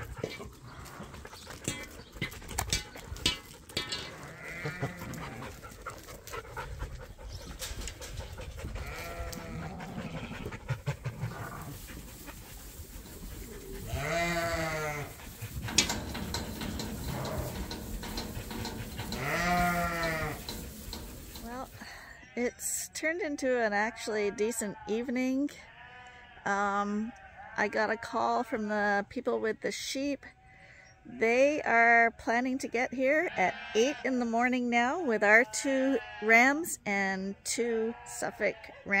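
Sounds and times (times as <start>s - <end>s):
knocks and shuffling of flock: 0.0s - 22.7s
sheep bleating: 4.2s - 5.5s, 8.8s - 10.6s, 13.8s - 15.2s, 18.6s - 20.5s.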